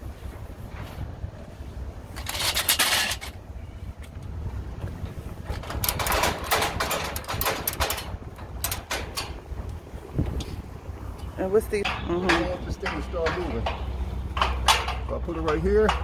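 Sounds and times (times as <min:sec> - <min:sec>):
low wind rumble: 0:00.0 - 0:16.0
ratchet strap clicking: 0:05.5 - 0:09.8.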